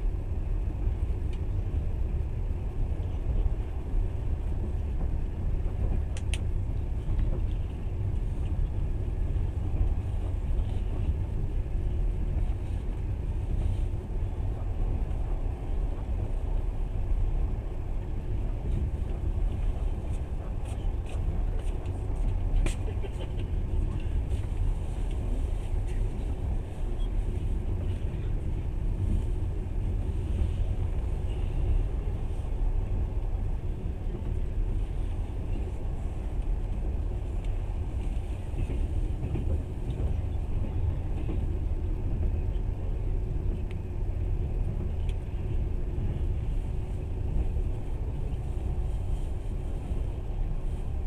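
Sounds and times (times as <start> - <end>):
train rumbling on track: 0.0 - 51.0.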